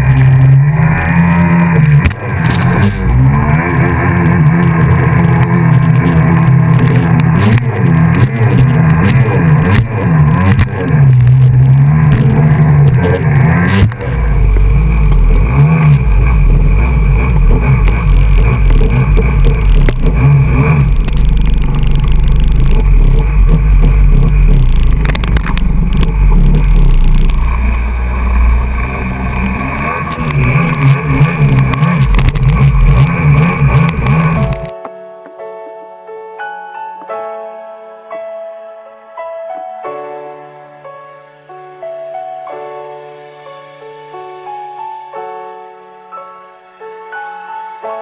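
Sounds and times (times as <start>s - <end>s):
jet ski engine revving: 0.0s - 34.7s.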